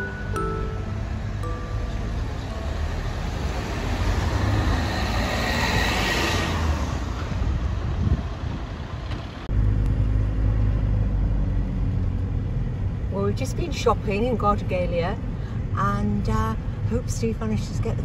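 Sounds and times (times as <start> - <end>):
car driving past: 1.4 - 8.1
car interior low rumble: 7.4 - 18.0.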